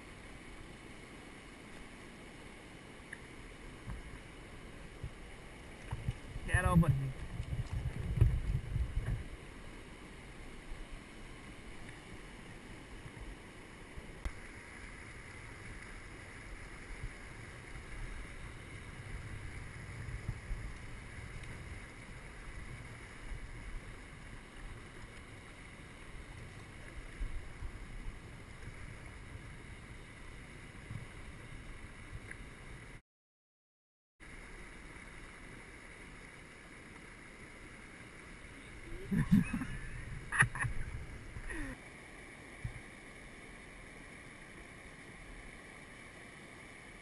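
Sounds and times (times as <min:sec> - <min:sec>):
river water running: 0:00.0 - 0:33.0, 0:34.2 - 0:47.0
wind rumbling on microphone: 0:04.8 - 0:09.7, 0:14.5 - 0:33.0, 0:38.6 - 0:41.8
low thumps and splashes: 0:04.9 - 0:09.3.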